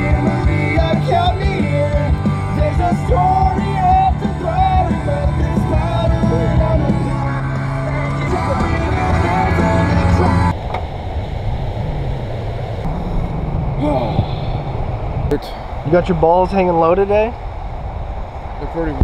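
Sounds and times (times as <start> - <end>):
loud music with bass and vocals: 0.0 - 10.5
people singing and yelling along: 0.0 - 10.6.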